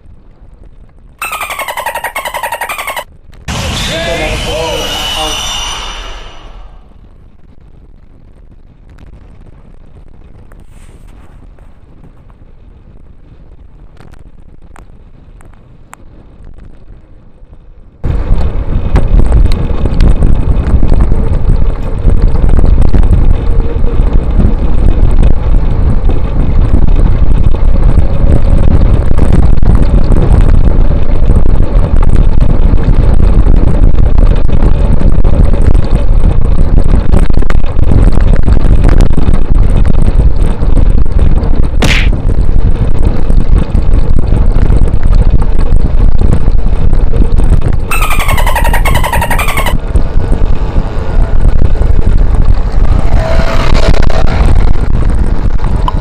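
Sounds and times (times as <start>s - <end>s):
wind buffeting microphone: 0.0s - 56.0s
short high squeak: 1.2s - 6.9s, 47.9s - 49.8s.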